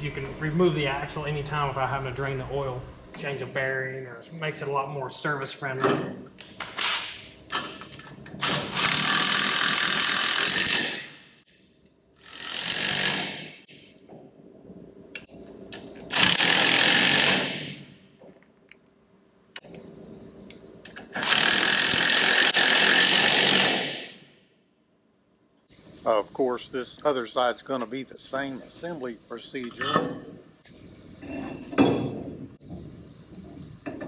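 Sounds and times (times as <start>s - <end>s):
power wrench running: 8.4s - 11.0s, 12.2s - 13.4s, 16.1s - 17.5s, 21.1s - 23.9s.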